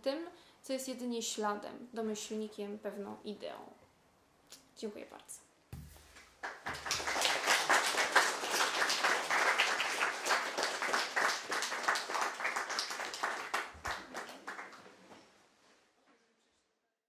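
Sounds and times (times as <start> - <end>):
audience applauding: 6.4 - 15.1.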